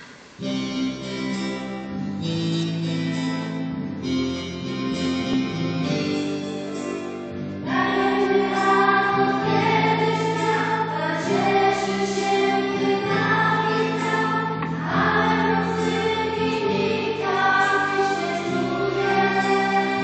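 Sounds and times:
children singing a hymn: 7.6 - 20.0.

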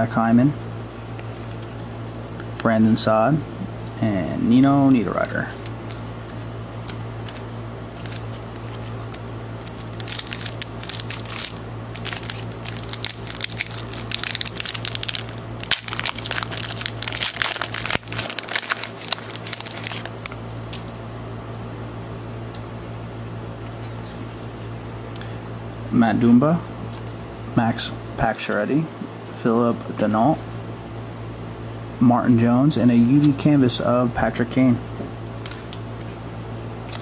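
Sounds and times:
steady low hum: 0.0 - 37.0
foil wrapper crinkling: 8.0 - 20.9.

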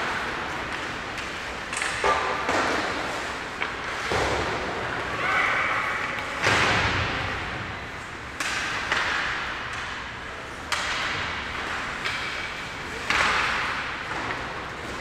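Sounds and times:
puck and sticks cracking: 0.1 - 4.5, 8.3 - 15.0.

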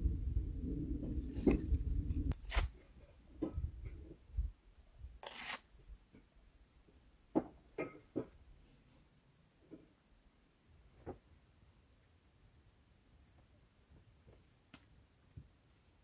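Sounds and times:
low rumble: 0.0 - 2.4.

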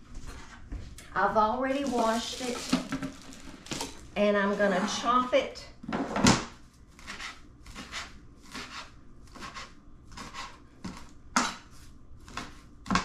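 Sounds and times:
knife chopping on cutting board: 7.0 - 11.7.

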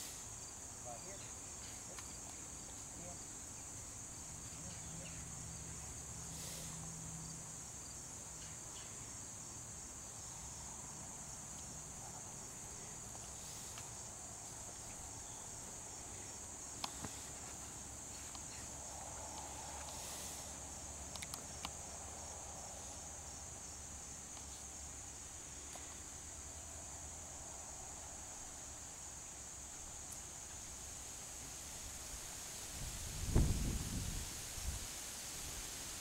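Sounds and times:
insects chorus: 0.0 - 36.0
sharp clicks: 21.1 - 21.8.

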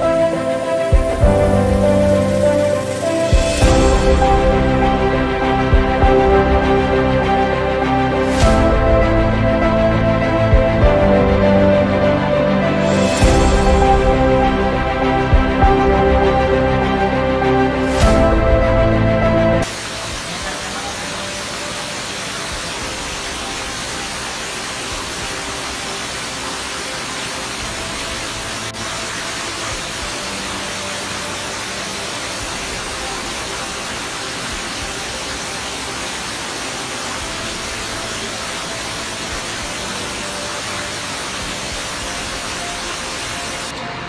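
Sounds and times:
stream rushing over rocks: 0.0 - 44.0.

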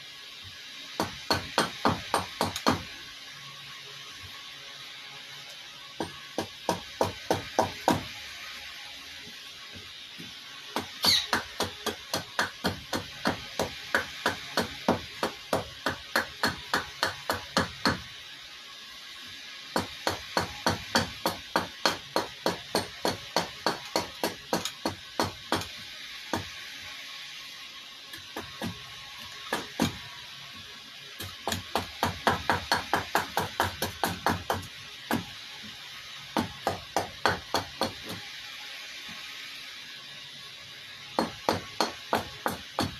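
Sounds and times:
hatchet chopping wood: 1.0 - 2.9, 6.0 - 8.1, 10.8 - 18.0, 19.8 - 25.7, 26.3 - 26.5, 28.4 - 28.8, 29.5 - 30.0, 31.2 - 35.2, 36.4 - 38.2, 41.2 - 42.9.

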